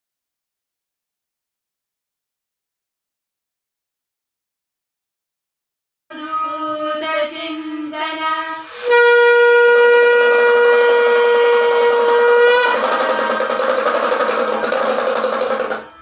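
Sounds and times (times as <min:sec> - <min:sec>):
conch shell blown: 0:08.7 - 0:16.0.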